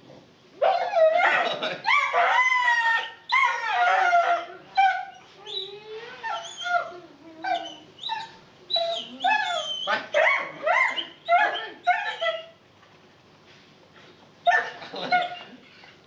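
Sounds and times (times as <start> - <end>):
dog whining and howling: 0.6 - 12.6.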